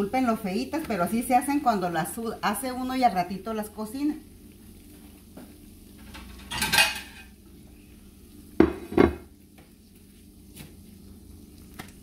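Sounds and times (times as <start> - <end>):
frying pan sizzle: 0.0 - 12.0
dishes clattering: 6.1 - 7.3, 8.6 - 9.3
plate knocking on counter: 8.6 - 9.3.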